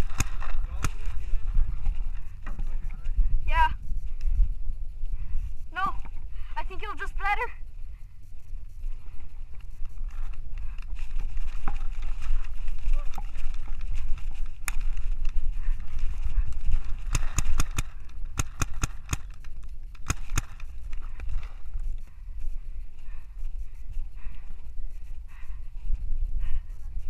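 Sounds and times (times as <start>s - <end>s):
paintball markers firing: 0.0s - 1.3s, 16.5s - 21.6s
wind rumble on microphone: 0.0s - 27.0s.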